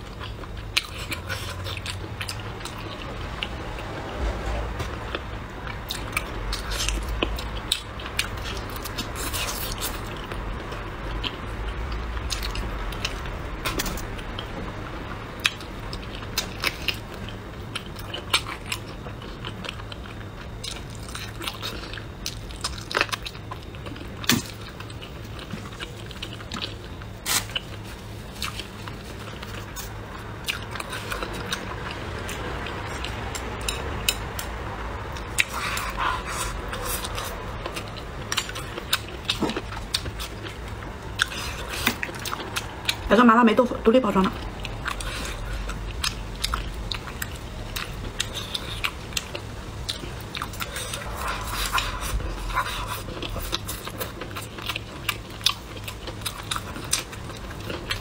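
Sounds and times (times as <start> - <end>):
person chewing: 0.0 - 3.9, 4.8 - 14.8, 15.4 - 43.1, 44.2 - 58.0
faint low hum: 0.0 - 58.0.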